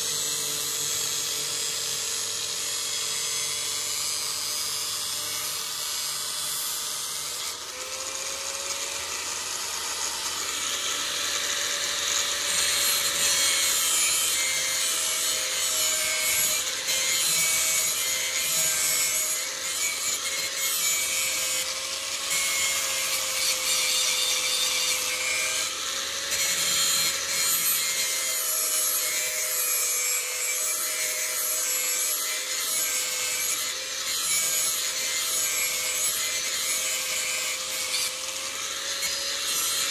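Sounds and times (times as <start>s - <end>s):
grinder motor hum: 0.0s - 28.2s.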